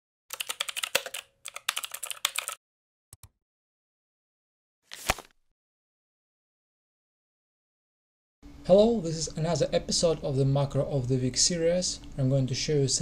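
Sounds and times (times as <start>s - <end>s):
keyboard typing: 0.3s - 2.6s.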